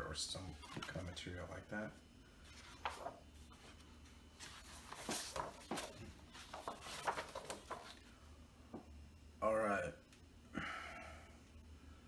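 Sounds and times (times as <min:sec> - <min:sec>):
book pages rustling and flapping: 0:02.4 - 0:08.1.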